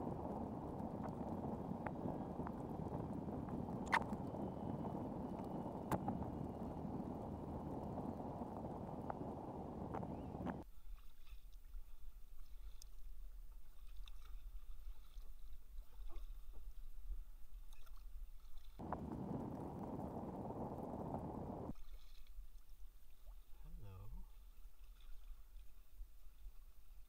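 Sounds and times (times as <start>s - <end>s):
paddle dripping and splashing: 10.9s - 16.9s, 17.8s - 23.5s, 24.5s - 25.8s
low rumble: 18.8s - 21.7s.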